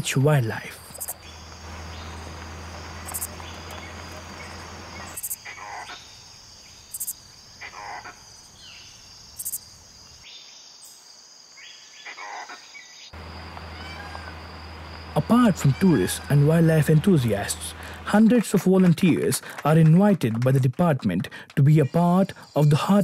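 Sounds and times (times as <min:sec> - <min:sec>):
insects droning: 0:00.0 - 0:23.0
descending calls: 0:13.2 - 0:23.0.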